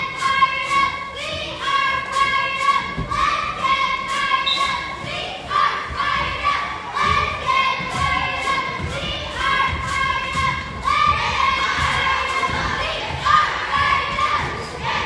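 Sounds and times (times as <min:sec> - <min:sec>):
spectators shouting in gym: 0:00.0 - 0:15.0
sneakers squeaking: 0:04.3 - 0:05.1.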